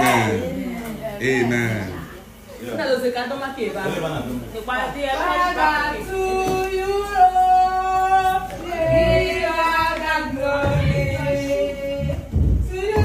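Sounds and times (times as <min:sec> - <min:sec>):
women singing together: 0:04.6 - 0:13.0.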